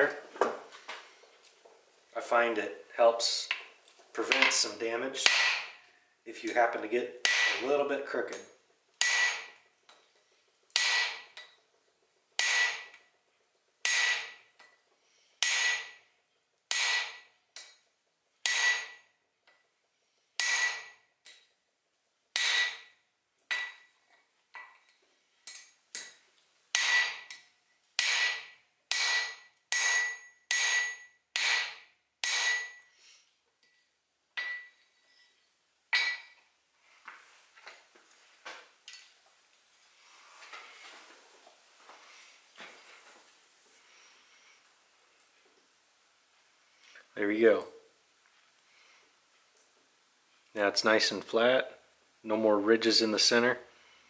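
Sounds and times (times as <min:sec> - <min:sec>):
hammer ringing on anvil: 0:15.4 - 0:16.0, 0:16.7 - 0:17.2, 0:18.5 - 0:19.0, 0:20.4 - 0:21.0, 0:22.4 - 0:22.8, 0:26.8 - 0:27.3, 0:28.0 - 0:32.9, 0:34.4 - 0:34.7, 0:36.0 - 0:36.4.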